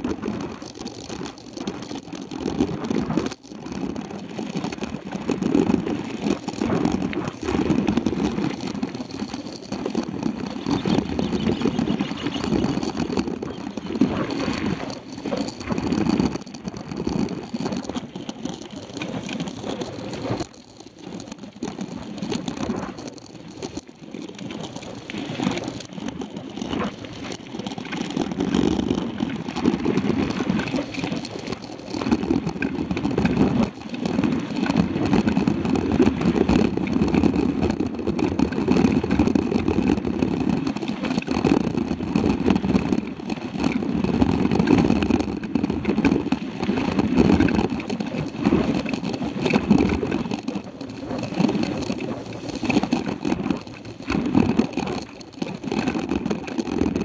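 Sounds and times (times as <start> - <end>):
bike rattling: 0.0 - 57.0
tyres rolling on dirt: 4.6 - 23.8, 41.4 - 57.0
wind buffeting microphone: 5.3 - 19.6.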